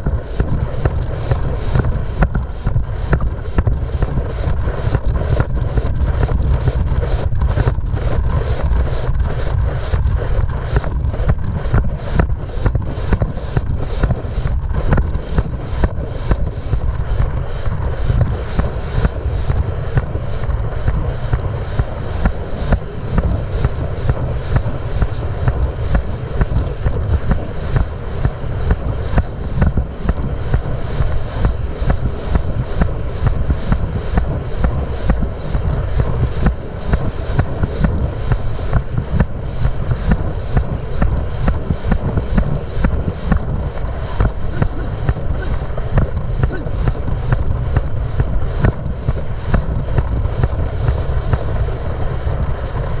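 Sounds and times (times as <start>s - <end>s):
wind on microphone: 0.0s - 53.0s.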